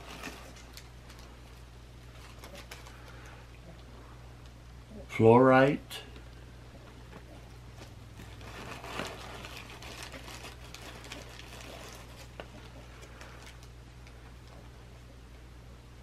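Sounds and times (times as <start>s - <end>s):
plastic bags crinkling: 0.0s - 3.4s, 7.1s - 14.6s
low electrical hum: 0.0s - 16.0s.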